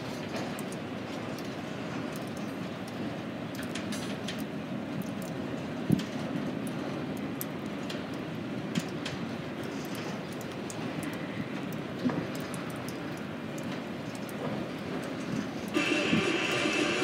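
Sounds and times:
rail joint clicks: 0:00.2 - 0:17.0
freight train wheels rumbling: 0:13.7 - 0:17.0
high-pitched wheel squeal: 0:15.8 - 0:17.0.

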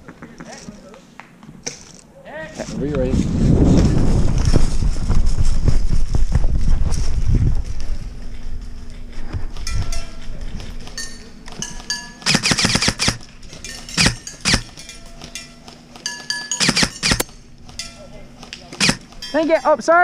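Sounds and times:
airsoft guns firing bursts: 0:12.2 - 0:13.2, 0:16.6 - 0:17.2, 0:18.8 - 0:19.0.

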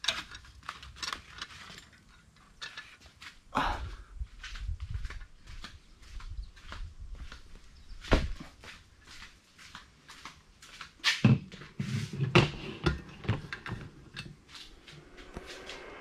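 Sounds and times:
footsteps: 0:04.3 - 0:16.0.

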